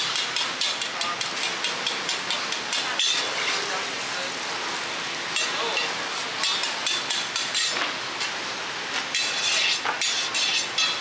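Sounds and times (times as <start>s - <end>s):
metal spatula striking a pan: 0.0s - 3.6s, 5.4s - 7.8s, 9.1s - 11.0s
pancake sizzling: 0.0s - 11.0s.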